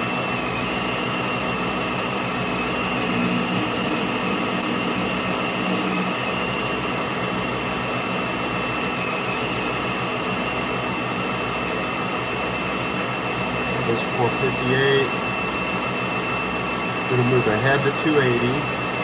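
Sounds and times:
high whine: 0:00.0 - 0:19.0
metal lathe running: 0:00.0 - 0:19.0.

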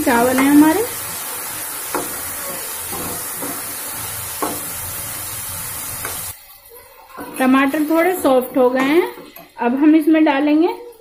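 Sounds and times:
vegetables sizzling in hot oil: 0:00.0 - 0:06.6
spatula knocking against pan: 0:04.4 - 0:04.8.

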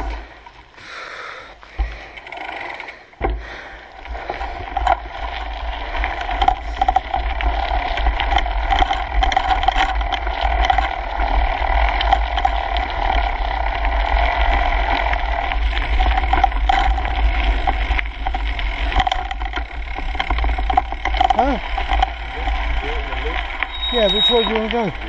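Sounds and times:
bike rattling and clicking: 0:00.0 - 0:25.0
bike tyres rolling on gravel: 0:00.0 - 0:25.0
low wind rumble: 0:03.1 - 0:25.0.

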